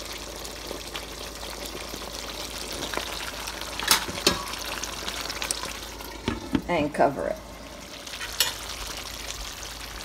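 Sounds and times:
sauce simmering with bubbling pops: 0.0 - 6.7.

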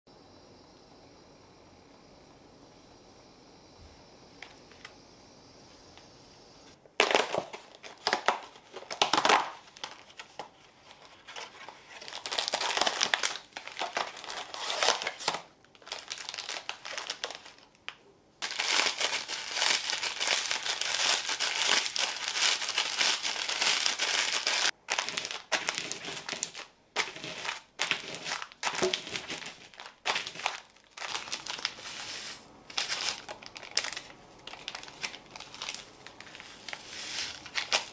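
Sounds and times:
biscuits being crushed: 6.9 - 10.9, 11.5 - 31.8, 32.7 - 37.9
plastic wrappers crinkling: 7.0 - 37.9.

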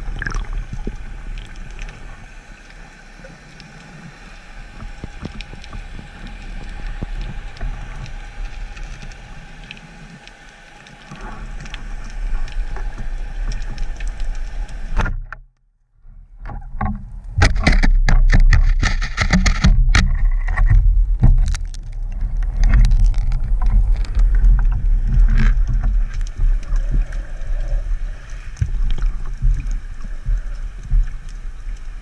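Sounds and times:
steady underwater hiss: 0.0 - 15.1, 22.0 - 32.0
faint clicks: 0.9 - 15.4
water rushing and knocking on housing: 17.4 - 21.6.

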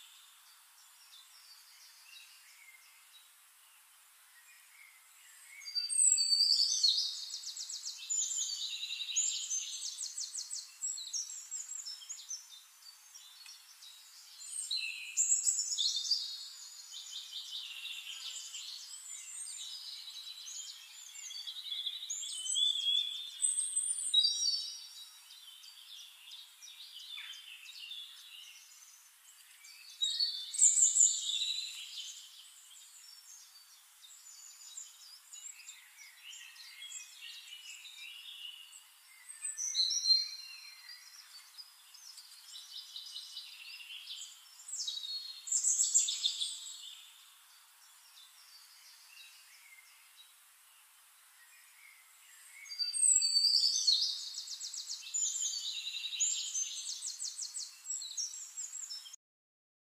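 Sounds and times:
birds chirping and trilling: 4.2 - 59.2.

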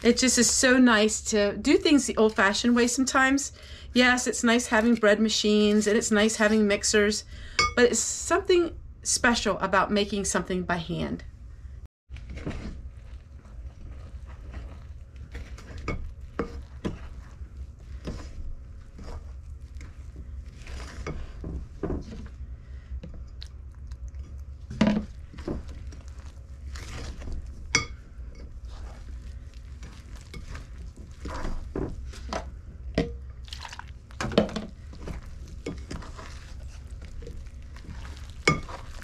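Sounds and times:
spoon scraping ceramic bowl: 13.8 - 21.4.

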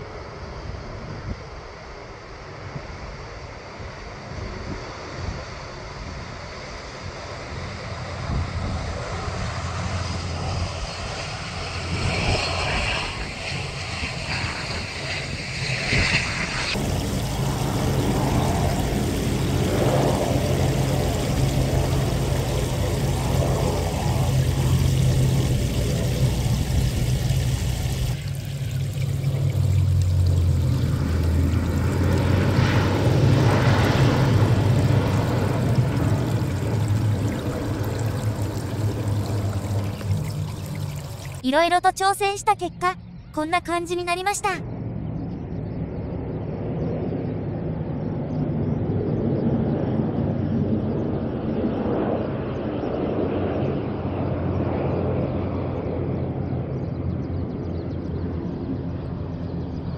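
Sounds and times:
distant propeller drone: 0.0 - 59.9
wind noise: 8.1 - 41.4.

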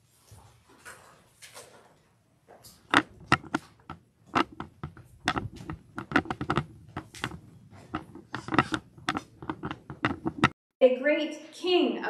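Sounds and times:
handling clicks and knocks: 2.5 - 10.6.

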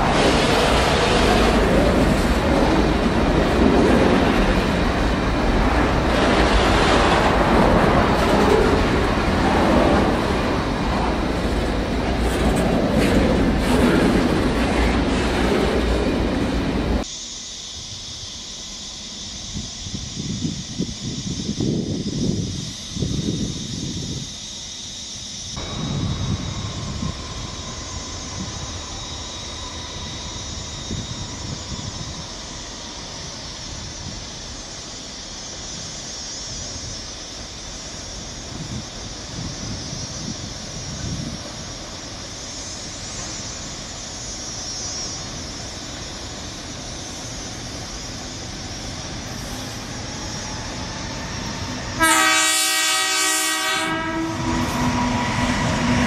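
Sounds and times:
train wheels on rails: 0.0 - 17.1, 17.8 - 56.0
locomotive horn blast: 52.0 - 55.3.

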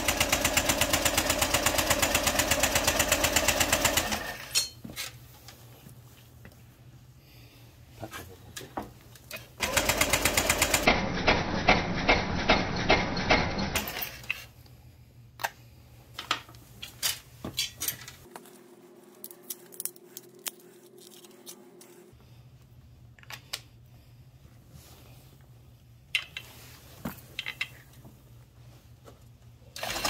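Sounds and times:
tools and metal parts clinking: 4.4 - 5.2, 13.8 - 14.5, 16.2 - 18.3, 27.1 - 28.0.

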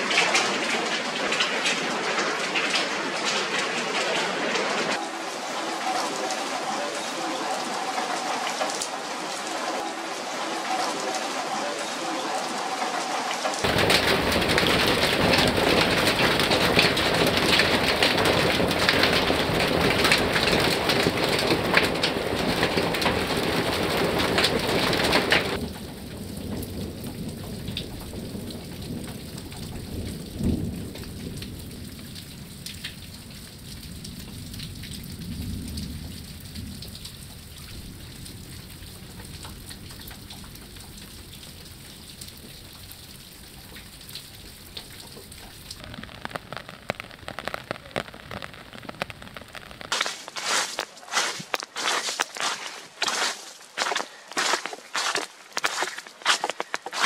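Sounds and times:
heavy rain falling: 0.0 - 57.0
distant thunder rumble: 13.6 - 32.9.

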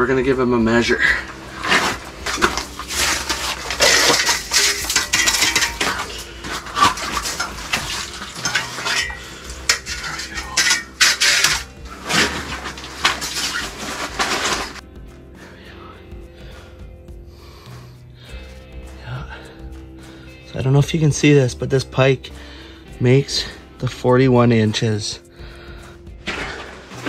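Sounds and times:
hard gear clattering and rattling: 0.8 - 14.8.

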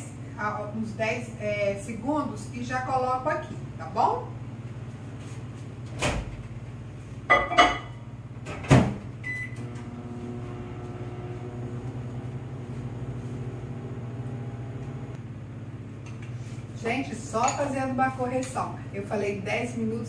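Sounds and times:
microwave running hum: 0.0 - 20.0
microwave beep: 9.2 - 11.0.

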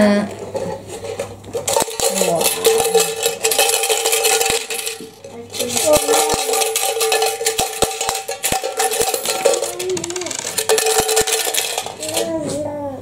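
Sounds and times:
coins clinking and scraping: 0.4 - 12.3.

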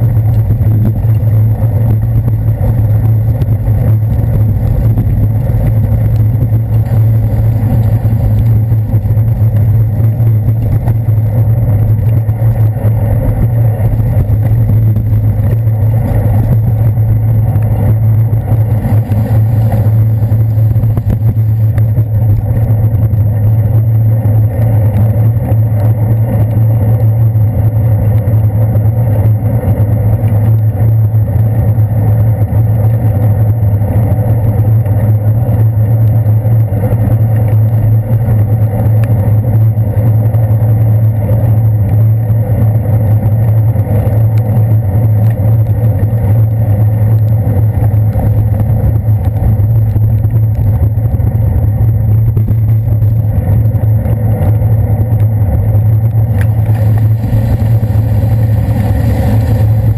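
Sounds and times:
muffled bicycle riding rumble: 0.0 - 59.9
strong low hum: 0.0 - 59.9
traffic drone: 0.0 - 59.9.

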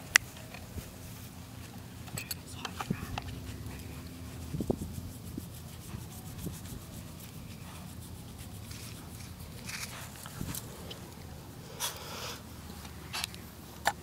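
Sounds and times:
steady low rumble: 0.0 - 13.8
toothbrush scrubbing a shell: 2.3 - 11.2.

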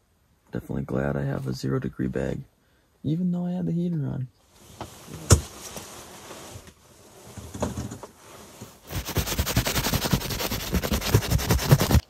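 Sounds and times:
hand scraping frost off fabric: 8.9 - 12.0.

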